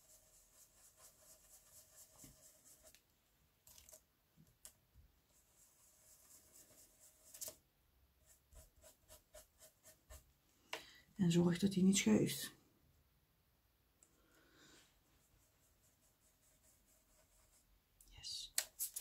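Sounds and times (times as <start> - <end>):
brush scrubbing on paper: 0.0 - 3.0, 5.4 - 7.5, 8.2 - 10.3, 15.0 - 17.7.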